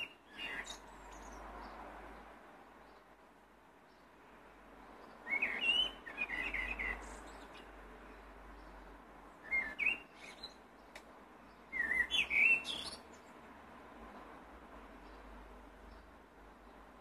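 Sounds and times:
blackbird singing: 0.0 - 1.8, 5.0 - 7.8, 9.4 - 13.3.

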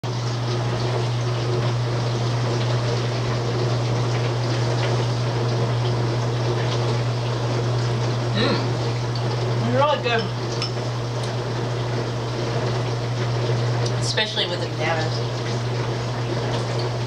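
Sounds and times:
steady low hum: 8.2 - 12.5.

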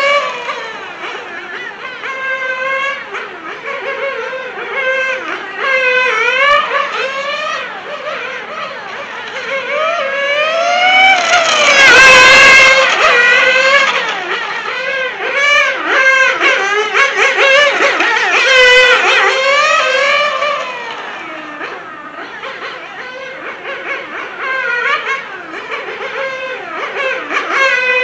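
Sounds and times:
rc car engine revving: 0.0 - 28.0.

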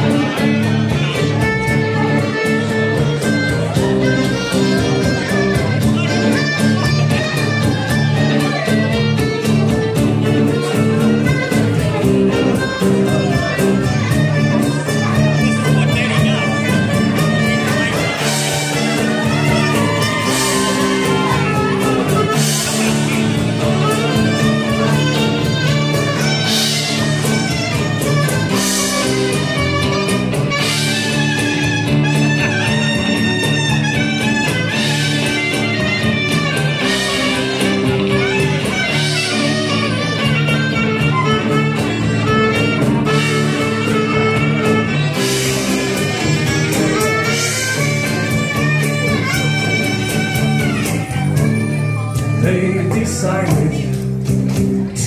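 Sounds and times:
clarinet playing a tune: 0.0 - 52.5
acoustic guitar: 0.0 - 55.0
bass guitar: 0.0 - 55.0
drums: 0.0 - 55.0.

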